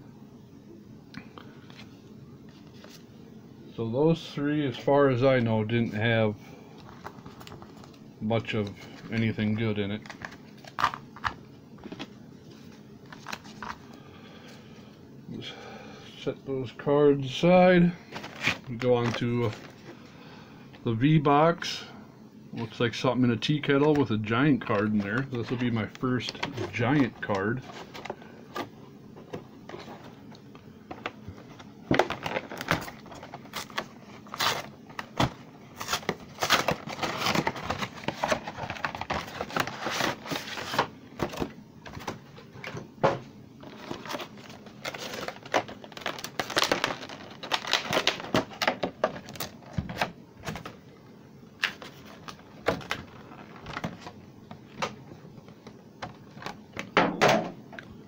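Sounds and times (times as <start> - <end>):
cardboard and plastic crinkling: 6.8 - 13.9, 18.0 - 20.0, 23.6 - 50.8, 51.6 - 57.0.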